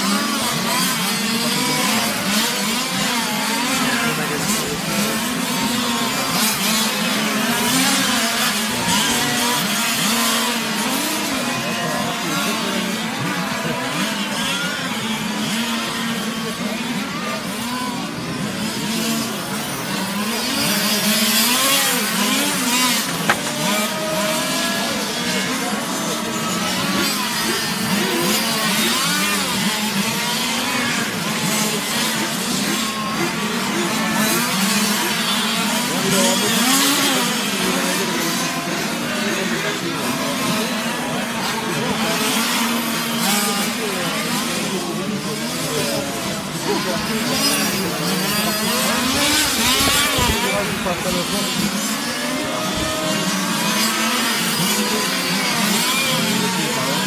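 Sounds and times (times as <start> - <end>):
model car engines revving: 0.0 - 57.0.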